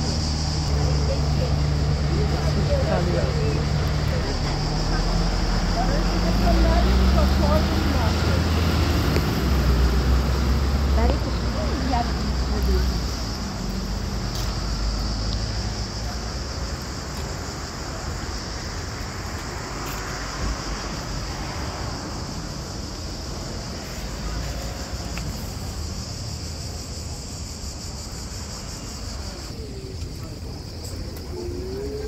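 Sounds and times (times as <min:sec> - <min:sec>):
high-pitched insect drone: 0:00.0 - 0:32.0
low traffic rumble: 0:00.0 - 0:32.0
wind: 0:00.0 - 0:32.0.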